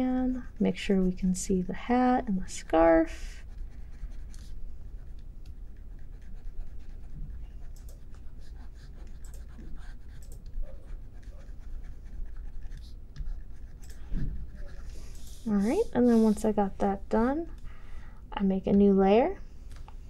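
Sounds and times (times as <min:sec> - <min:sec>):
pointing device scratching and ticks: 0:03.6 - 0:16.5.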